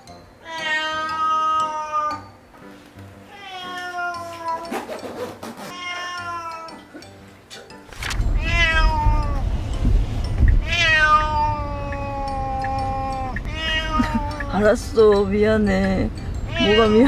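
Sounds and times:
cat meowing: 0.4s - 2.2s, 3.3s - 4.8s, 5.7s - 6.8s, 8.4s - 9.5s, 10.6s - 14.7s, 16.5s - 17.0s.

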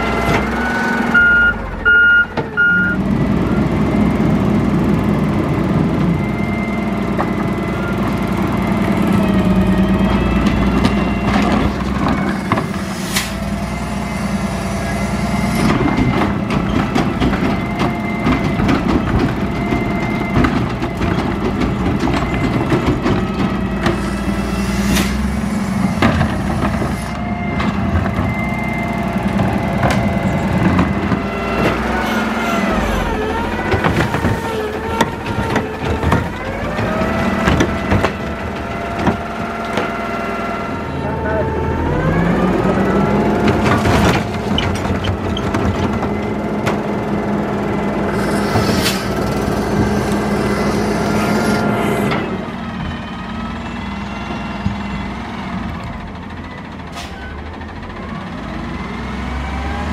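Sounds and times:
garbage truck engine running: 0.0s - 59.9s
hydraulic arm lifting: 8.4s - 40.2s, 48.0s - 52.4s.

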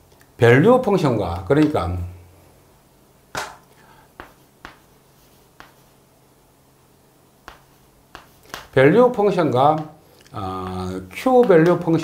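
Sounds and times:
faint steady hum: 0.0s - 12.0s
chalk tapping on chalkboard: 3.4s - 6.0s, 7.4s - 12.0s.

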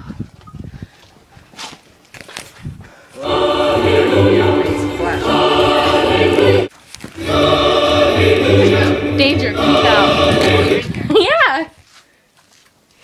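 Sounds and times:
choir singing held chords: 3.2s - 11.1s.

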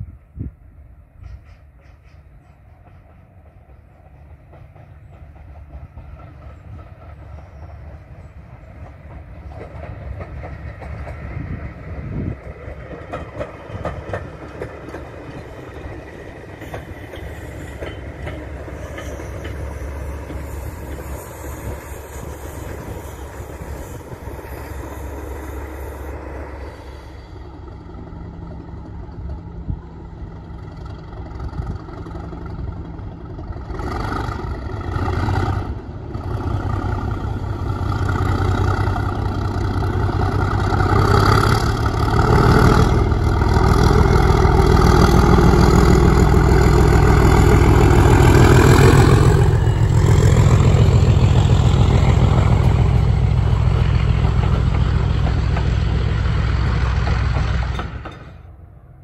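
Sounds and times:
diesel locomotive passing: 0.0s - 59.0s
train wheels clattering on rails: 1.0s - 58.6s.

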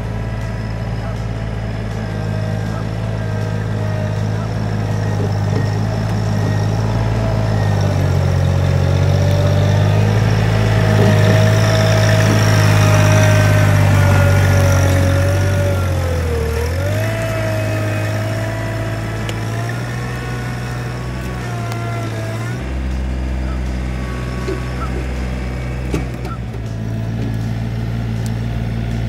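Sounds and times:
tractor engine running: 0.0s - 29.0s.

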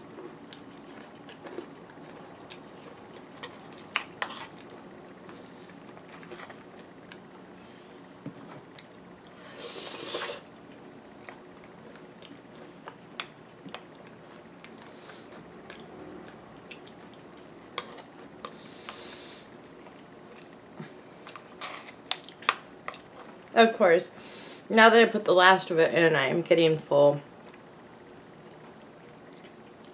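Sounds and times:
chewing and crunching: 0.0s - 7.3s, 10.6s - 23.5s, 28.4s - 29.9s.

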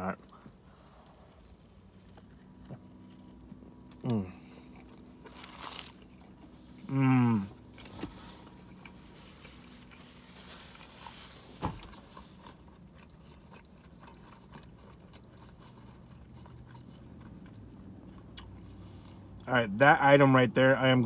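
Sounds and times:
quiet chewing: 0.2s - 19.5s
man humming mmm: 4.0s - 4.4s, 6.8s - 7.6s.

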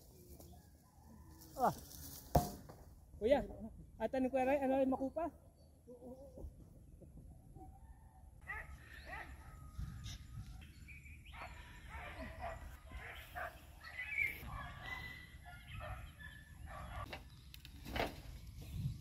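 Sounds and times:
birds and chickens calling: 5.5s - 17.5s.

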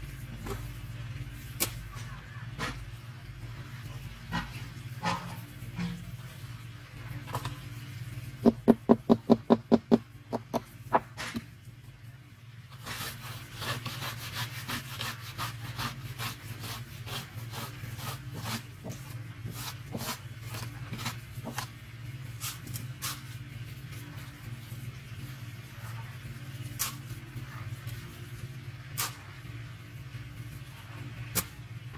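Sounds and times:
steady low hum: 0.0s - 31.9s
board knocking on concrete: 8.5s - 11.1s.

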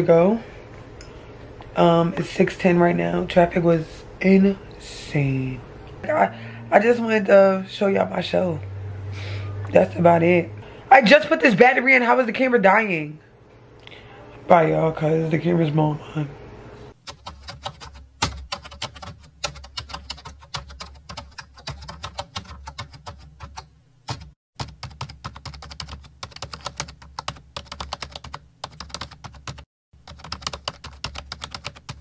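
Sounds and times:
keyboard typing: 17.0s - 32.0s.

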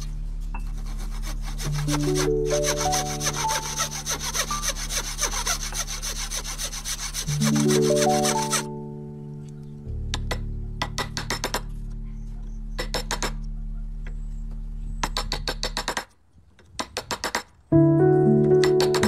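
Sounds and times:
background music: 0.0s - 15.8s, 17.7s - 19.0s.

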